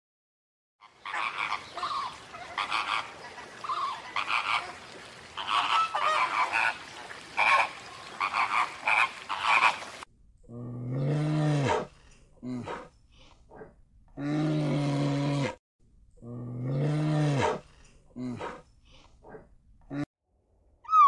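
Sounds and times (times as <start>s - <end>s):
harsh croaking animal calls: 0.8s - 12.9s.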